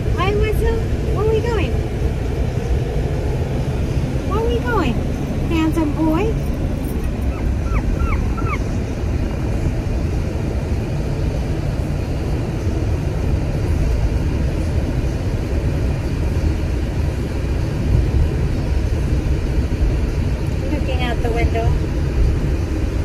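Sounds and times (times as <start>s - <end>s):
car road and engine rumble: 0.0s - 23.0s.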